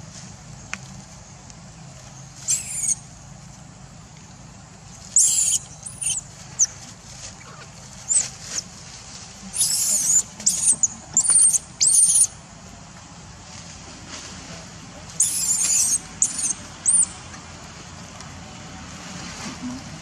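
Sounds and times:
baby monkey squealing: 2.4 - 3.0, 5.1 - 6.8, 7.4 - 8.6, 9.5 - 12.4, 15.2 - 17.2.

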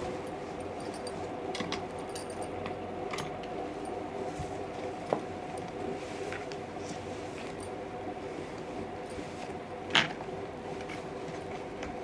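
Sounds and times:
cloth rustling: 3.6 - 9.6.

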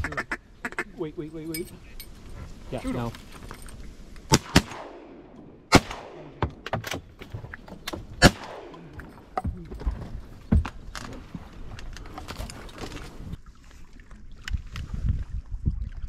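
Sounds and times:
shotguns firing: 4.3 - 7.1, 8.2 - 9.0.

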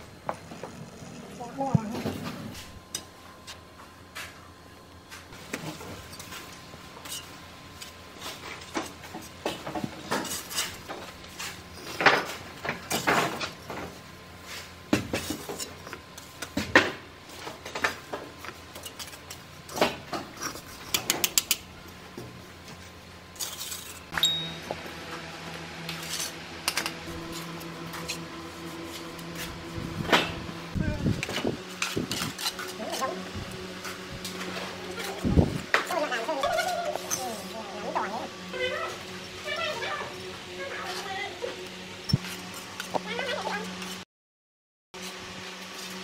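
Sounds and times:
low steady hum: 0.0 - 43.6.

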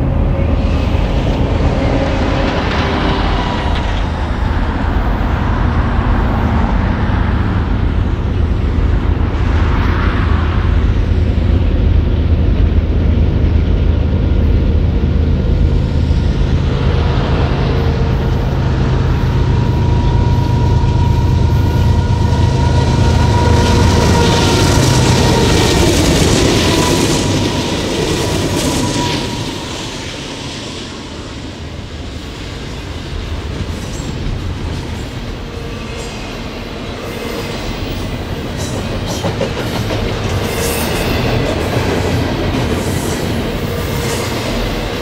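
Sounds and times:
diesel locomotive engine drone: 0.0 - 45.0.

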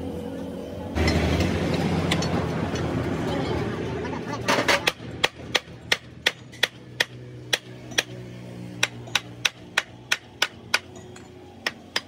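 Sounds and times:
hammer striking steel: 4.5 - 12.0.

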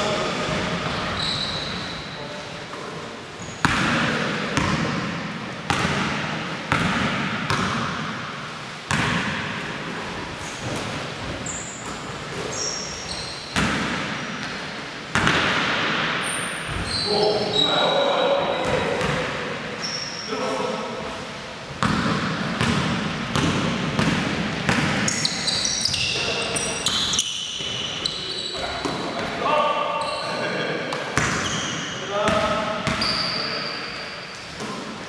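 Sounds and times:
short high squeaks: 1.2 - 2.0, 12.5 - 13.5, 19.8 - 20.4, 30.0 - 30.6, 33.0 - 34.5
basketball bouncing on wooden floor: 4.6 - 5.0, 5.7 - 8.0, 21.8 - 25.2.

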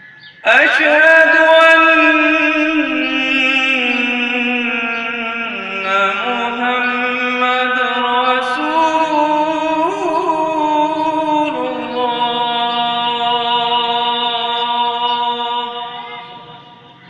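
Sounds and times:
man chanting call to prayer: 0.4 - 17.0.

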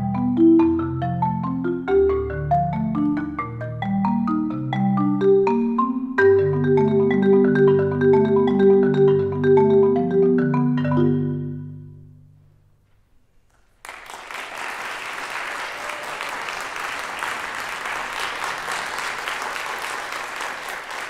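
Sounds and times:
marimba chord ringing: 0.0 - 12.4
audience applause: 13.8 - 21.0.

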